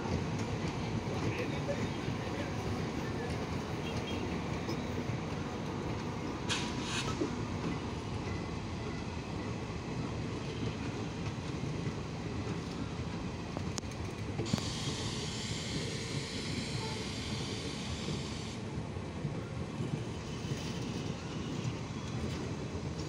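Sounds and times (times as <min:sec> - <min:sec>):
train wheels rumbling on rails: 0:00.0 - 0:23.0
train hissing: 0:01.1 - 0:08.6, 0:14.4 - 0:18.8.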